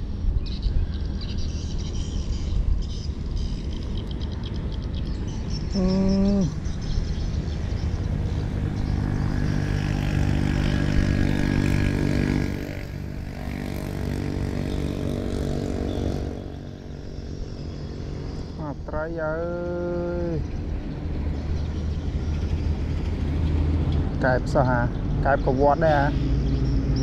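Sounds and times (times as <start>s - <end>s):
vehicle engine hum: 0.0s - 27.0s
short low call: 5.7s - 6.6s.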